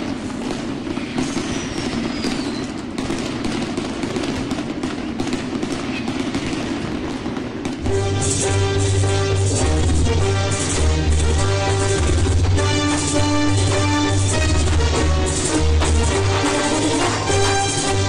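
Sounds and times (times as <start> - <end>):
fireworks bursting and crackling: 0.0 - 18.0
firework whistle falling: 0.9 - 2.9, 7.8 - 18.0
music: 7.8 - 18.0.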